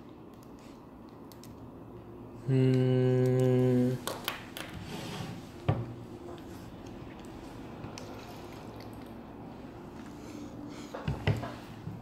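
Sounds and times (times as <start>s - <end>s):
man humming low note: 2.4s - 4.0s.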